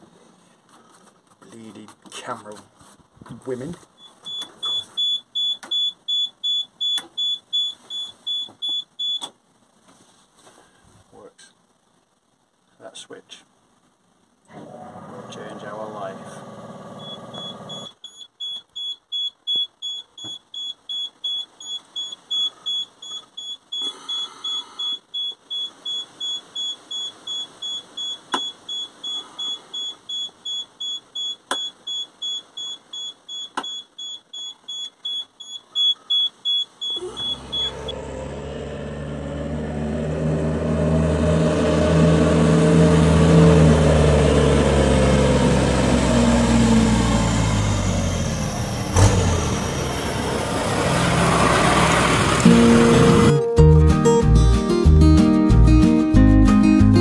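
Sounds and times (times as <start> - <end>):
high electronic beeper: 4.0 - 9.2, 17.0 - 38.0, 52.4 - 53.6
diesel engine running: 14.5 - 17.9, 37.0 - 54.5.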